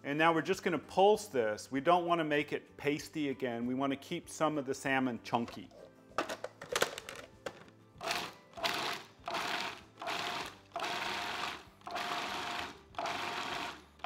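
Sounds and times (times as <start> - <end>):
food processor motor whir: 8.0 - 13.8.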